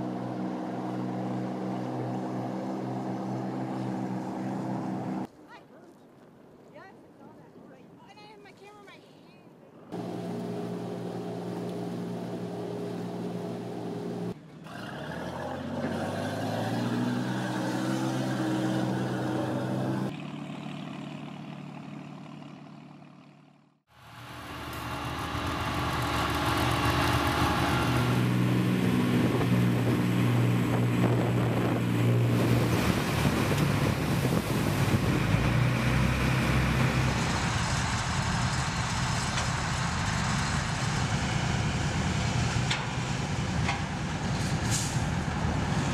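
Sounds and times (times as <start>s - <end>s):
heavy vehicle engine running: 10.0s - 14.4s, 19.2s - 45.9s.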